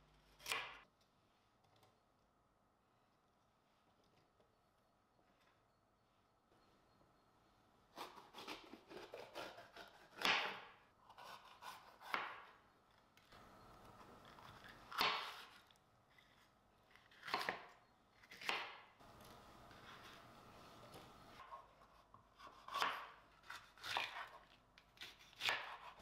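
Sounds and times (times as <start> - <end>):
knife cutting pepper on board: 8.0 - 12.5, 17.1 - 18.8, 21.4 - 26.0.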